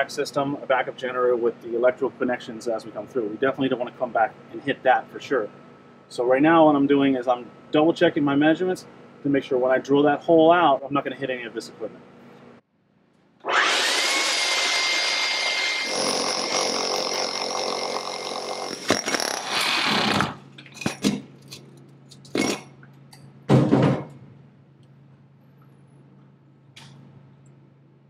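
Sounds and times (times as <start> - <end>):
power drill whining: 13.4 - 20.4.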